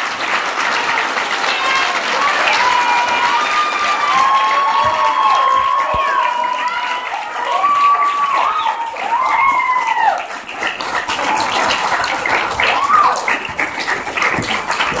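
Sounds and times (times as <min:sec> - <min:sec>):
audience clapping and cheering: 0:00.0 - 0:15.0
high whoops and shouts: 0:01.4 - 0:10.3, 0:12.6 - 0:13.2.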